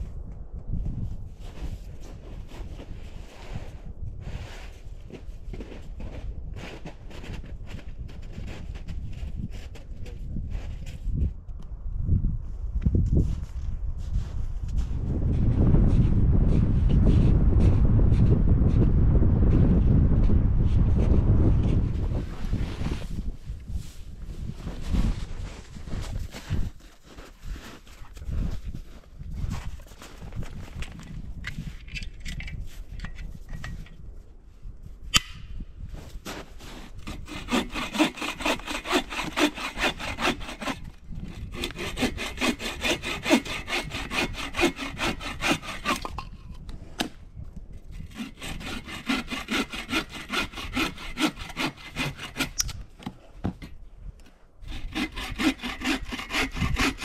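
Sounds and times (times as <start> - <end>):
hand saw cutting wood: 36.3 - 47.1, 47.9 - 52.8, 54.6 - 57.0.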